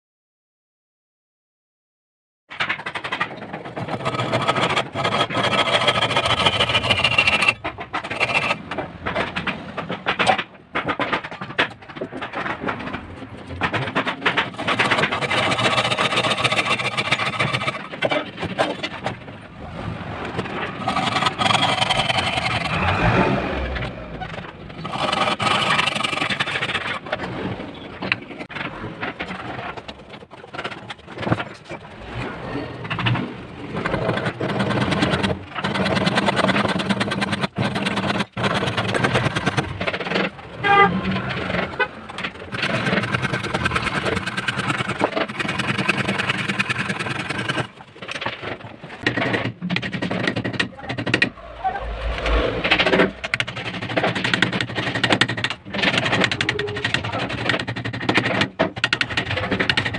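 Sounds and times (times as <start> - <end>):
hand saw cutting wood: 3.8 - 8.7, 14.5 - 18.8, 20.8 - 23.7, 24.8 - 27.1, 33.9 - 39.8, 42.2 - 47.8.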